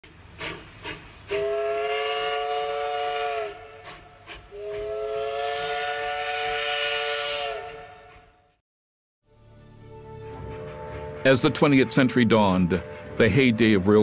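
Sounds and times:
puffs of steam: 0.2 - 6.2
steam locomotive whistle: 1.3 - 8.6.

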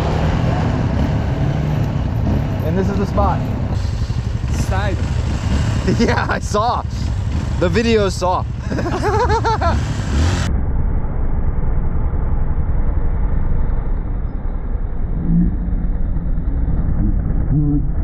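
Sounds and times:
motorcycle engine running: 0.0 - 10.5
road noise: 0.0 - 18.0.

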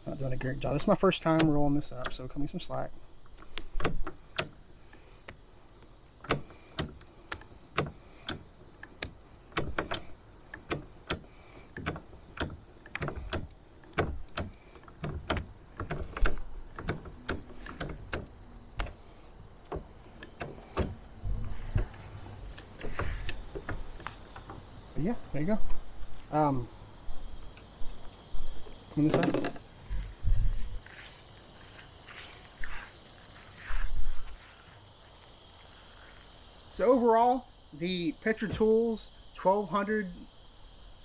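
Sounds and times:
hose reel crank clicking: 6.2 - 24.5.

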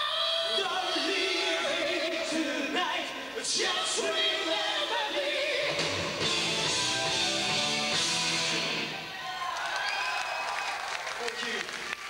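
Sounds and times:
person singing: 0.0 - 7.8
electric guitar: 5.6 - 9.1
live hard rock band: 5.6 - 9.1.

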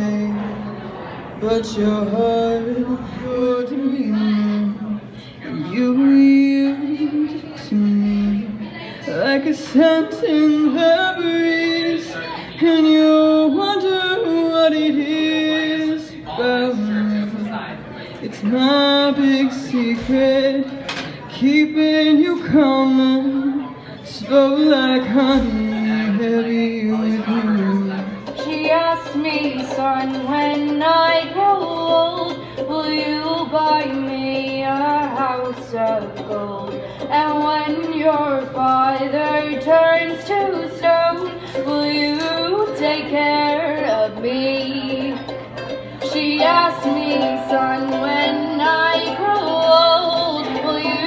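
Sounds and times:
woman singing: 1.5 - 17.5, 27.4 - 45.4, 46.0 - 51.0
ukulele strumming: 1.6 - 51.0.

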